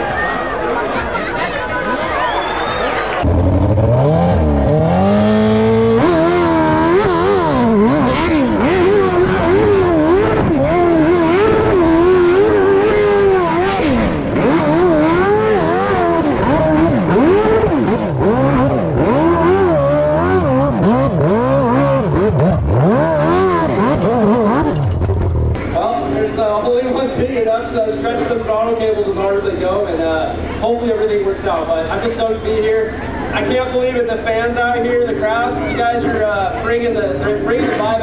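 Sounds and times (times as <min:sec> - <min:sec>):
dirt bike engine revving: 0:03.2 - 0:26.6.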